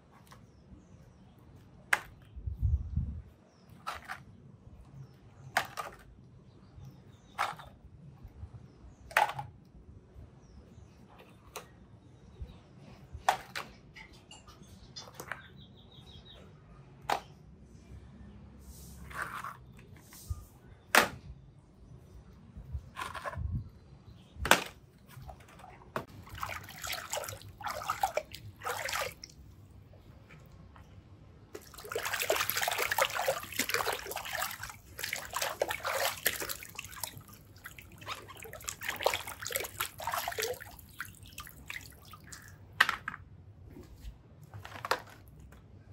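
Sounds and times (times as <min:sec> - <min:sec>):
hands splashing in water: 0:26.1 - 0:29.4, 0:31.6 - 0:42.6.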